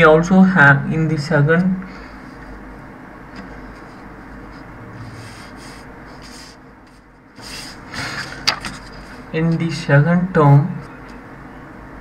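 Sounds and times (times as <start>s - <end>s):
paper rustling: 5.2s - 9.3s.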